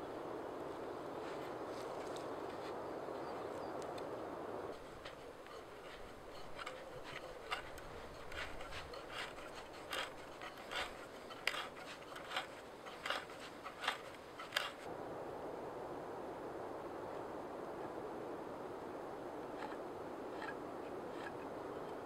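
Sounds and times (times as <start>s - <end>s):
steady outdoor hiss: 0.0s - 22.0s
hand tool scraping wood: 4.8s - 14.9s, 19.6s - 22.0s.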